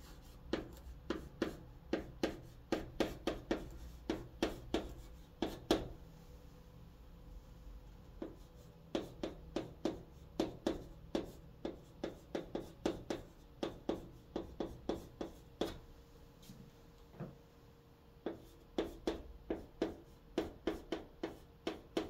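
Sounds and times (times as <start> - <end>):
chalk tapping and scratching: 0.0 - 6.0, 8.2 - 15.8, 18.2 - 22.0.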